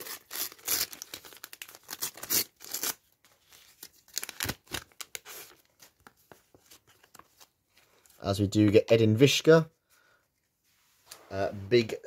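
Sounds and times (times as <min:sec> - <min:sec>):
paper wrapper tearing and crinkling: 0:00.0 - 0:05.6.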